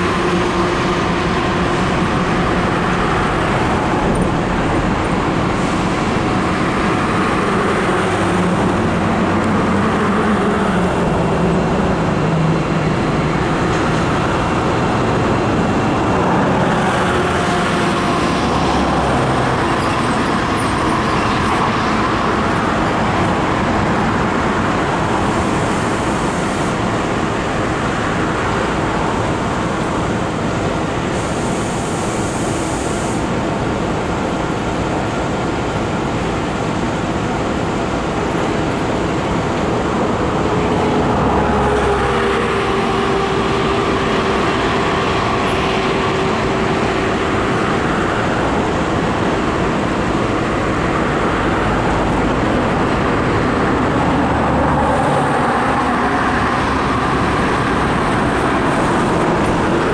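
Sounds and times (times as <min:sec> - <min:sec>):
road traffic passing: 0:00.0 - 0:59.9
vehicle engine tone: 0:36.2 - 0:59.9.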